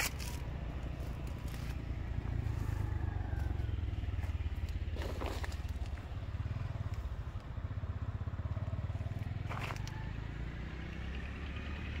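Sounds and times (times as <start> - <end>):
motorbike engine rumbling: 0.0 - 12.0.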